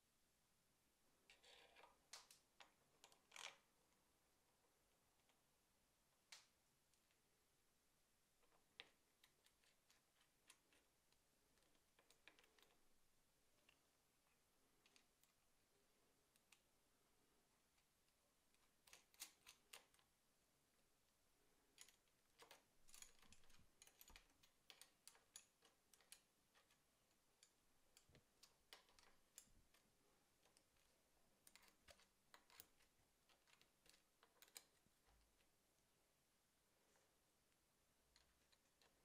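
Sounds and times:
small metal hardware clicking: 0:21.8 - 0:26.8, 0:31.4 - 0:34.8.

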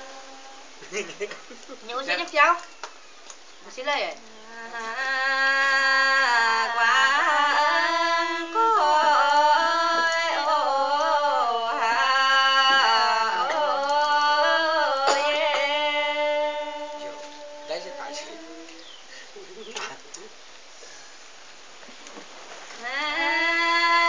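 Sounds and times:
woman singing folk song: 0:04.2 - 0:19.0, 0:22.7 - 0:24.0.

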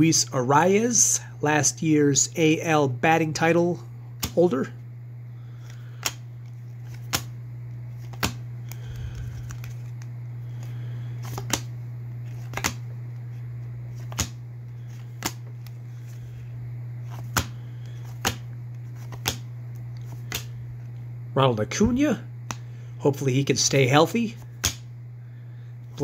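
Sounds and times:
steady low hum: 0:00.0 - 0:26.0
cards snapping off a stack: 0:04.2 - 0:04.4, 0:05.6 - 0:06.2, 0:06.8 - 0:07.4, 0:08.0 - 0:11.7, 0:12.3 - 0:12.9, 0:14.0 - 0:15.7, 0:17.0 - 0:20.6, 0:24.4 - 0:24.9.

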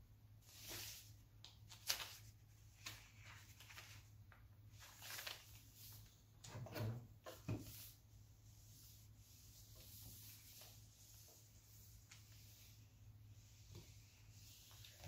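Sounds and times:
paper rustling and crinkling: 0:00.5 - 0:06.1.

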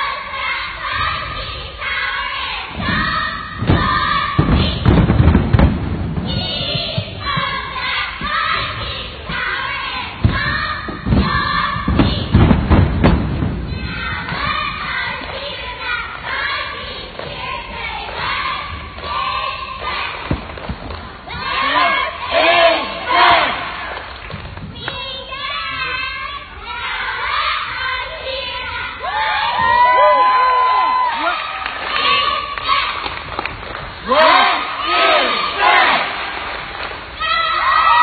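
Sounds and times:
children chanting in unison: 0:00.0 - 0:04.9, 0:21.3 - 0:24.0, 0:34.0 - 0:36.5
heavy thumps: 0:02.7 - 0:19.2.

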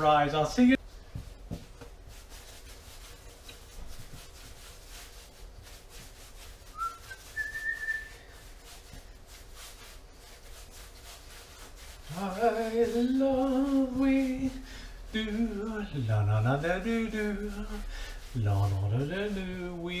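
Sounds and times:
dough rubbing on counter: 0:00.8 - 0:20.0
person whistling: 0:06.7 - 0:08.3.

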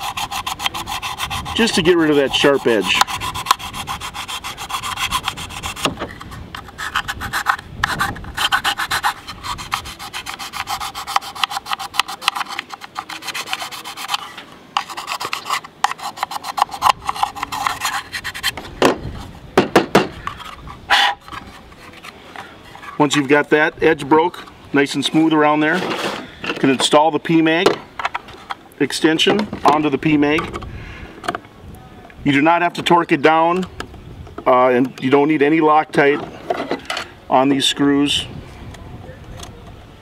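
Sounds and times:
metal file scraping plastic: 0:00.0 - 0:19.4, 0:20.1 - 0:23.4, 0:24.2 - 0:27.0.

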